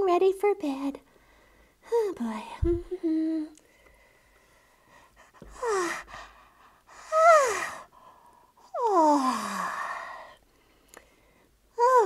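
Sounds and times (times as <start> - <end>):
person voicing yawns: 8.7 - 10.3.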